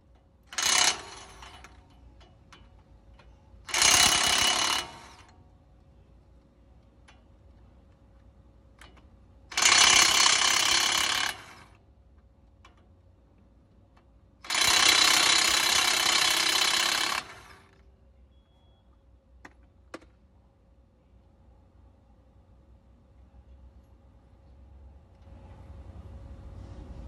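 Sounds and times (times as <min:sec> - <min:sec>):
impact wrench hammering: 0:00.5 - 0:05.3, 0:08.8 - 0:11.7, 0:14.4 - 0:17.6.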